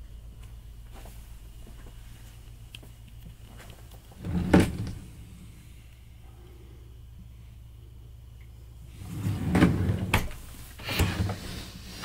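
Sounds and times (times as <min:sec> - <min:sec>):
steady low hum: 0:00.0 - 0:12.0
desk drawer sliding open: 0:04.2 - 0:05.1, 0:09.0 - 0:12.0.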